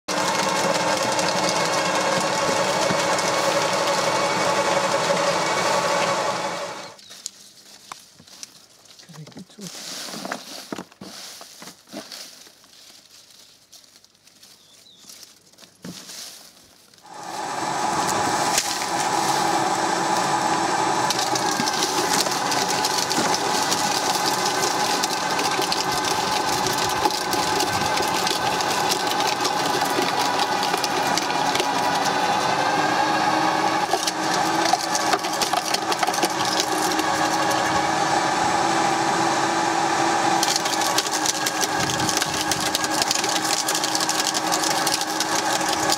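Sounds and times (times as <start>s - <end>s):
garden shredder whining: 0.0s - 7.0s, 17.0s - 45.9s
stalks crackling and snapping: 7.0s - 9.6s, 18.1s - 19.5s, 21.0s - 32.8s, 33.7s - 37.7s, 40.4s - 45.9s.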